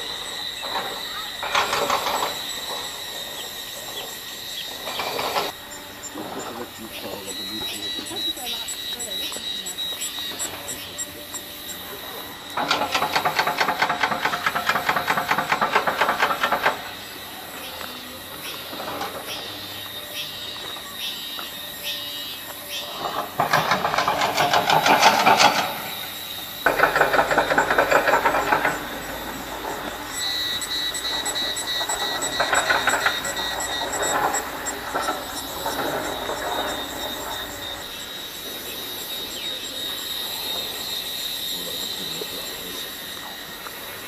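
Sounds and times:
insects buzzing: 0.0 - 44.0
high whine: 24.3 - 42.9.

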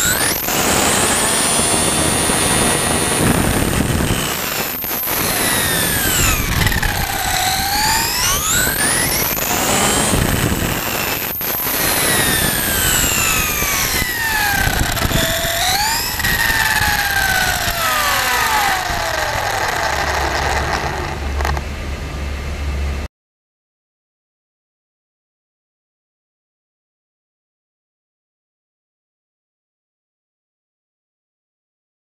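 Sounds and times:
tyre and wind rush: 0.0 - 19.4
electric motor whine: 0.0 - 21.7.

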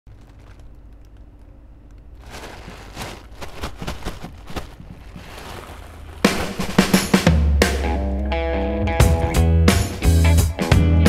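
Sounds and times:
faint low hum: 0.1 - 7.5
sand rustling and crunching: 2.1 - 7.3.

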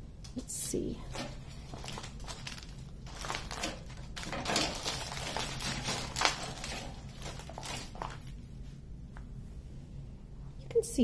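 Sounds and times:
plastic film crinkling: 1.1 - 8.8.

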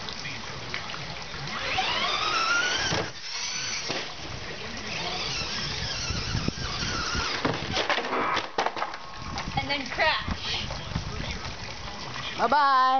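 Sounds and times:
toy truck motor whining: 1.5 - 4.1, 4.9 - 7.8.

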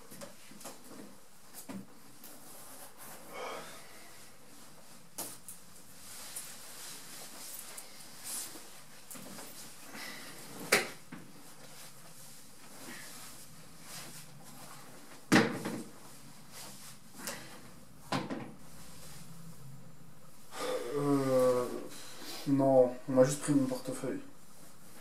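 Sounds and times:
knocks and thumps of furniture: 15.3 - 16.0, 18.1 - 18.6.

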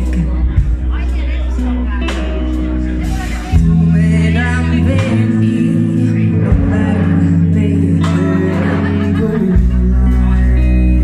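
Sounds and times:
woman singing: 0.0 - 1.2, 3.2 - 11.0
live band playing: 0.0 - 11.0.

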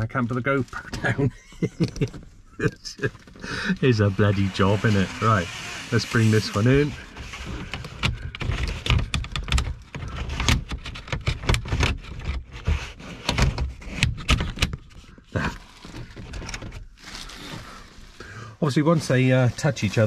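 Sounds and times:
blind sliding on its rail: 3.8 - 8.1.

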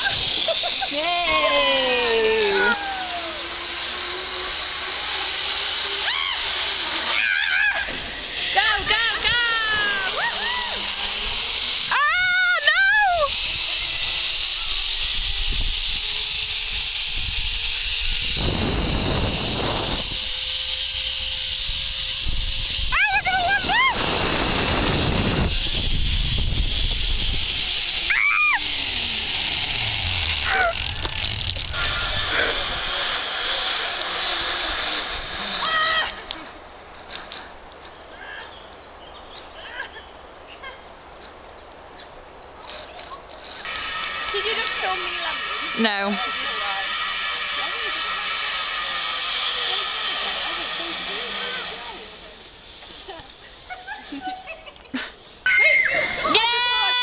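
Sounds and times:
zip wire trolley hissing on cable: 0.0 - 57.0
birds chirping: 3.2 - 4.8, 37.8 - 43.3
wind rumble on microphone: 16.6 - 20.3, 21.6 - 27.6.

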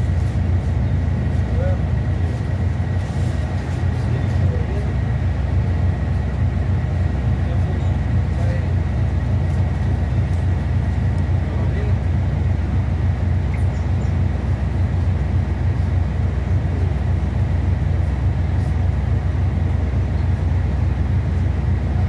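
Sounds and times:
diesel bus engine idling: 0.0 - 22.0.

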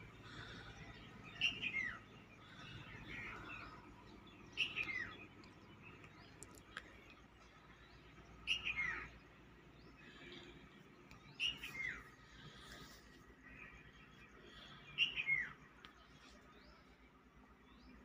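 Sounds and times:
soft bird chirps: 0.0 - 18.0.

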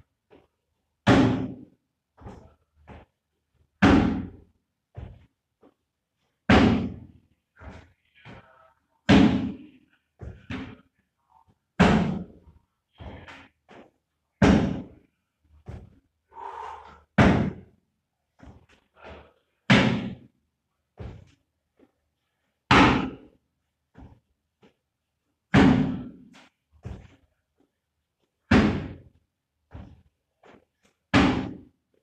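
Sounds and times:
soft footstep thuds: 4.9 - 5.8, 15.6 - 16.0, 21.0 - 21.9, 26.8 - 27.3, 28.5 - 30.6.

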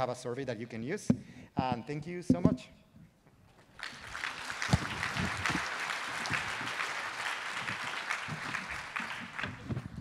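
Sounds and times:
audience applauding: 3.6 - 10.0.

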